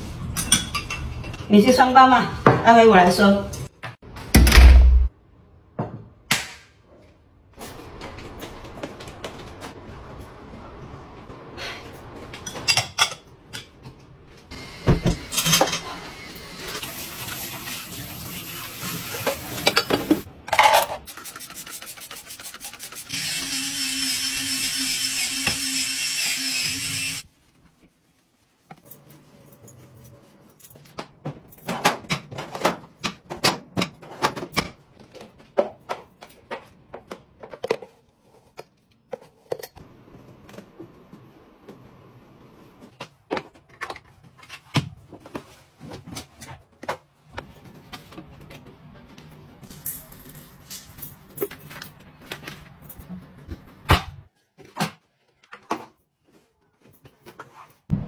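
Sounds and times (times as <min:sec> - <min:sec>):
water spraying from tap: 0:16.5 - 0:20.2
dishes being rubbed: 0:21.0 - 0:23.1.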